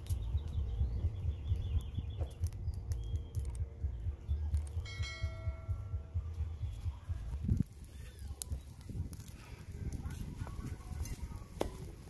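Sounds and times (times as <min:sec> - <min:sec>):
faint bird chirps: 0:00.0 - 0:07.1
low rumble: 0:00.0 - 0:11.0
wood fire crackling: 0:00.0 - 0:12.0
bell chime: 0:04.8 - 0:06.0.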